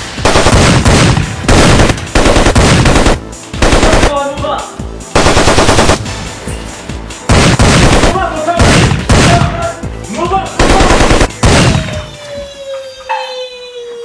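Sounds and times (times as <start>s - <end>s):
machine-gun fire: 0.2s - 4.2s, 5.1s - 6.1s, 7.3s - 9.6s, 10.6s - 12.1s.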